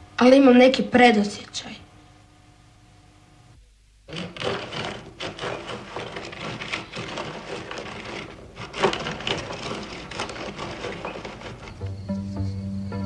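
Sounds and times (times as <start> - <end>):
drum grater grinding nuts: 4.1 - 13.0.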